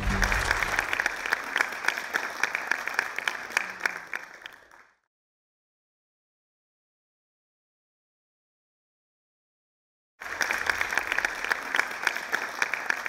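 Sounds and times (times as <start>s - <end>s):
audience applauding: 0.0s - 5.0s, 10.2s - 13.0s.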